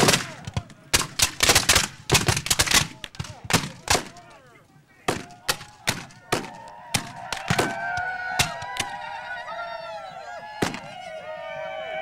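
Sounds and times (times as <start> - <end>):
musket shots: 0.0 - 4.2, 5.1 - 7.8
men yelling: 5.2 - 12.0.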